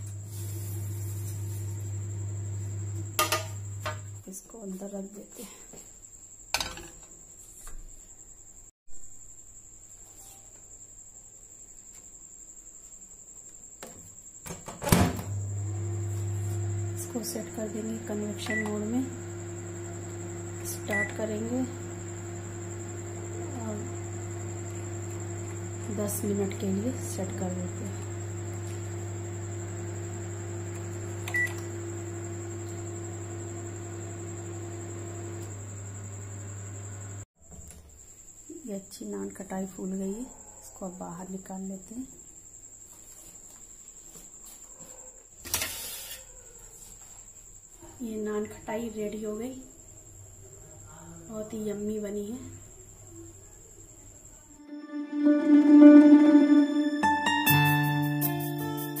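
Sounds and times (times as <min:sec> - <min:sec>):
microwave oven humming: 0:00.0 - 0:04.2, 0:14.8 - 0:37.3
oven door shutting: 0:14.6 - 0:15.4
microwave control panel beep: 0:16.8 - 0:26.4, 0:27.2 - 0:37.2
faint high-pitched tone: 0:16.8 - 0:28.8, 0:54.6 - 0:57.6.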